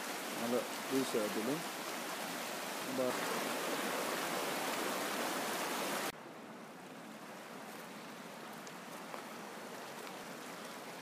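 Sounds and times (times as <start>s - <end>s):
river rushing over rocks: 0.0s - 6.1s.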